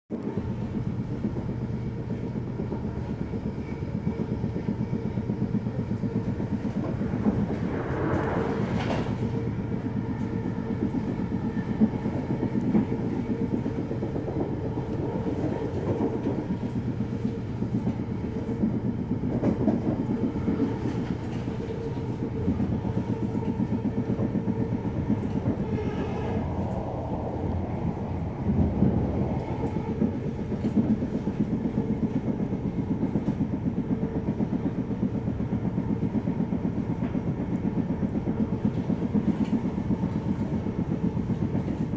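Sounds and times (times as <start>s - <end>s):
steady train hum: 0.1s - 41.9s
train wheels rumbling on rails: 0.1s - 41.9s.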